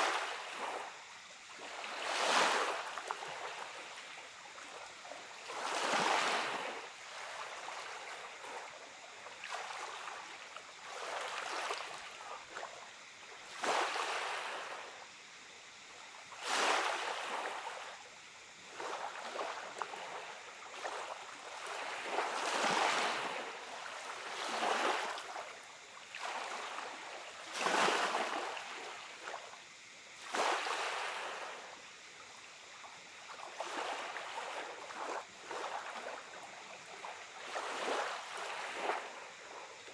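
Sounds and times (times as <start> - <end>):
small sea waves washing up beach: 0.0 - 39.9.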